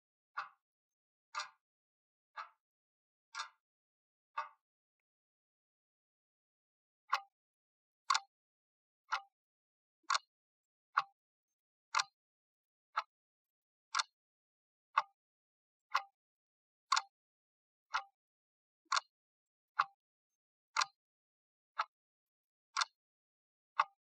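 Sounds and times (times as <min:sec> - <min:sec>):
clock ticking: 0:22.8 - 0:23.0.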